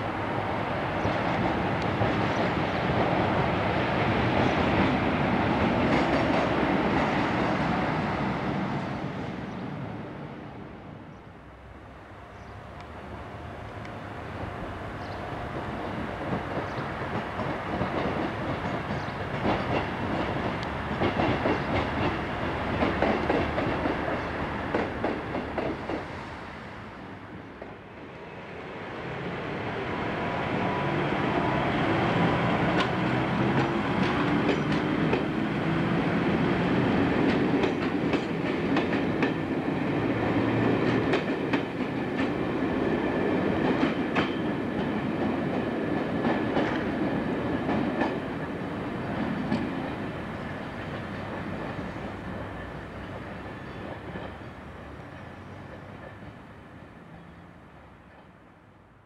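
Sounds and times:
diesel locomotive passing: 0:00.0 - 0:59.0
train wheels clicking over rail joints: 0:15.0 - 0:26.2, 0:32.6 - 0:48.5.

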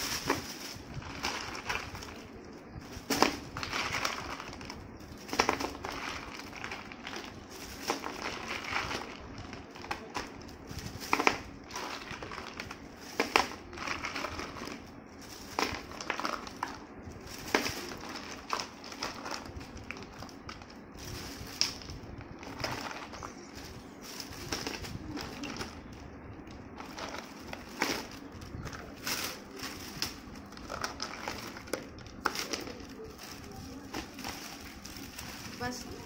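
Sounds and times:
plastic bag rustling: 0:00.0 - 0:36.0.

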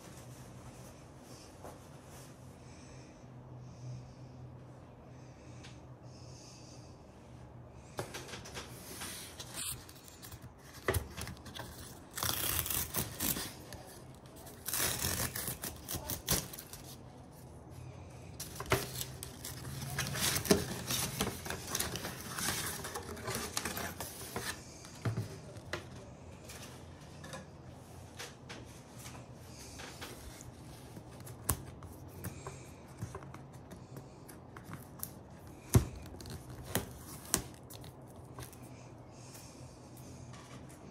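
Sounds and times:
cardboard packaging rustling: 0:08.8 - 0:17.5, 0:18.3 - 0:25.7.

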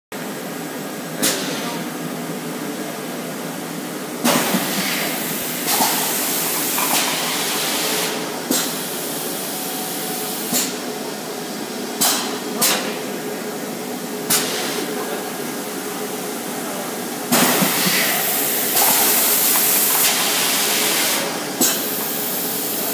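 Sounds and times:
machine hissing: 0:17.3 - 0:22.9.

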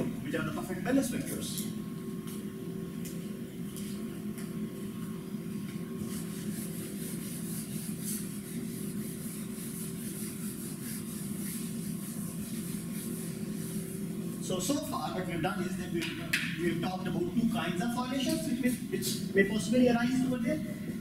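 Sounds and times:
steady low hum: 0:00.0 - 0:21.0
eraser rubbing on whiteboard: 0:06.0 - 0:14.1.

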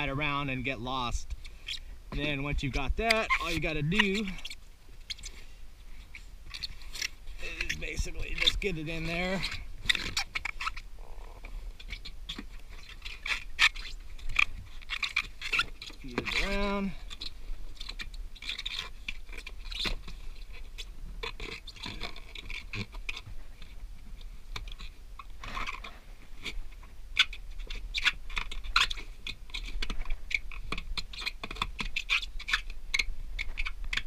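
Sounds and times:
foam scraping against plastic: 0:02.2 - 0:05.4, 0:06.1 - 0:20.6.

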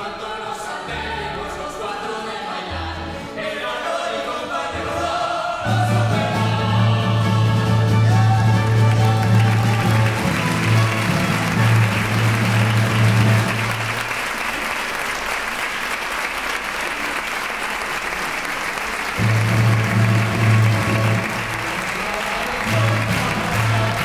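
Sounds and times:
orchestra playing: 0:04.3 - 0:14.6, 0:19.0 - 0:24.0
audience applauding: 0:08.2 - 0:24.0.

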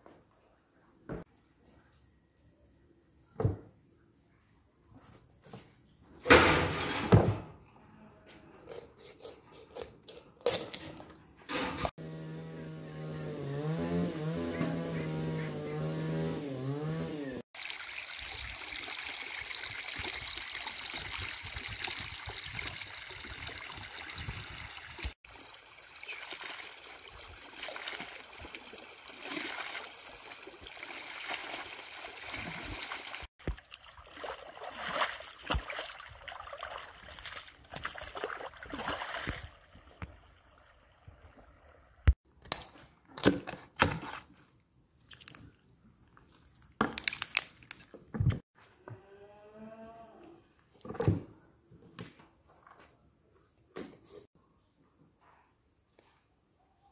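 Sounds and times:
water trickling: 0:17.6 - 0:35.2
shovel sloshing in wet mud: 0:33.4 - 0:39.6.

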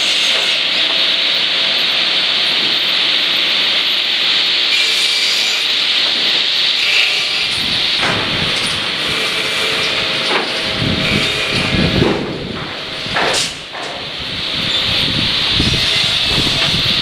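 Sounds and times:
chain conveyor running: 0:00.0 - 0:17.0
spinning saw blades: 0:14.2 - 0:17.0.

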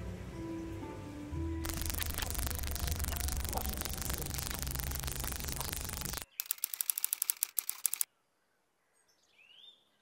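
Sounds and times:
low hum: 0:01.6 - 0:06.3
rapid mechanical clicks: 0:01.6 - 0:08.1.

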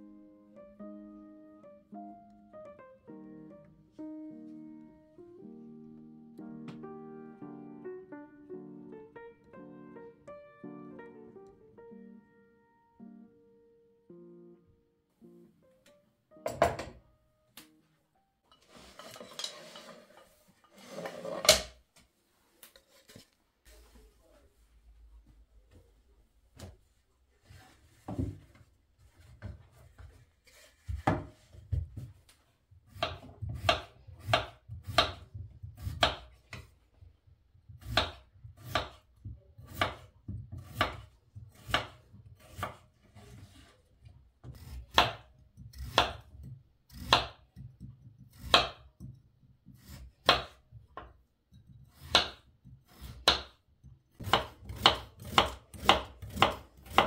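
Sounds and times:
knife chopping on wooden board: 0:30.6 - 0:32.1, 0:32.9 - 0:36.7, 0:37.7 - 0:43.7, 0:44.4 - 0:51.1, 0:51.7 - 0:53.6, 0:54.2 - 0:57.0.

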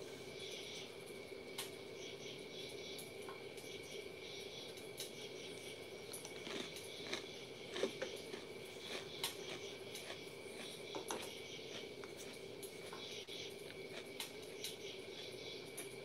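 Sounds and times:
faint hum: 0:00.0 - 0:16.0
person chewing crisp cookie: 0:05.6 - 0:16.0.

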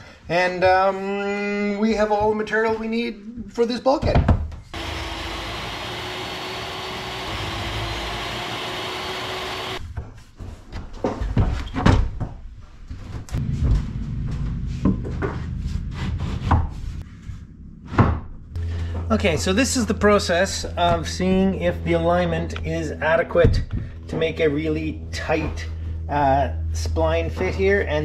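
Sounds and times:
knocks and thumps of moving saw: 0:04.8 - 0:09.8
table saw whining: 0:04.8 - 0:09.8.

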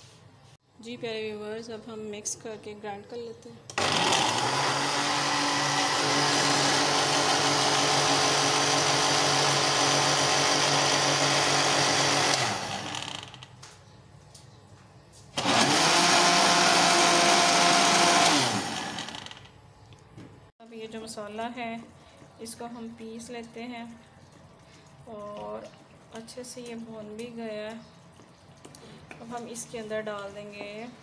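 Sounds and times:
mixer grinder motor blending: 0:03.7 - 0:13.5, 0:15.4 - 0:19.5.

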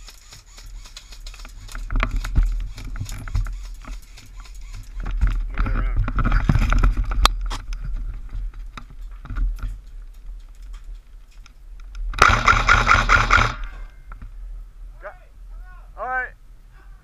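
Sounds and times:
airsoft rifle full-auto burst: 0:00.0 - 0:05.1, 0:12.2 - 0:13.7.

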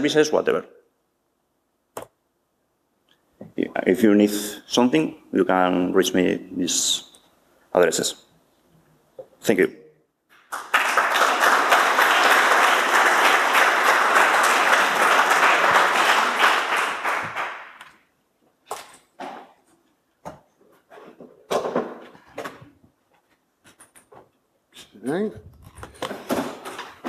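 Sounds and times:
audience applauding: 0:10.4 - 0:17.9.

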